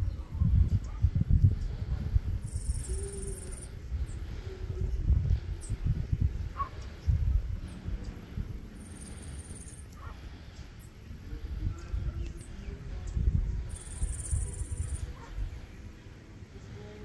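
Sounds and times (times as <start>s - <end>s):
wind rumble on microphone: 0.0s - 17.0s
high insect buzz: 2.4s - 3.9s, 13.6s - 15.4s
faint bird chirps: 2.4s - 17.0s.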